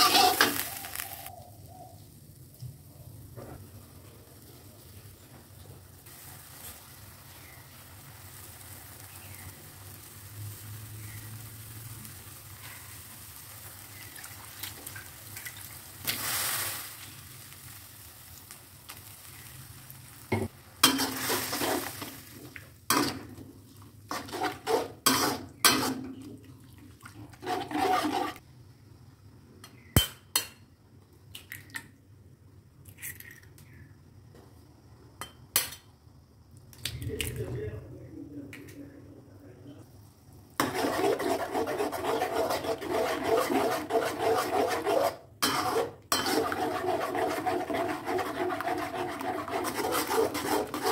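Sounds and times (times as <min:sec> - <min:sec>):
spatula scraping wok: 0:00.0 - 0:01.3, 0:20.4 - 0:26.3, 0:27.3 - 0:28.4, 0:40.6 - 0:50.9
frying sizzle: 0:00.0 - 0:26.4, 0:45.2 - 0:50.9.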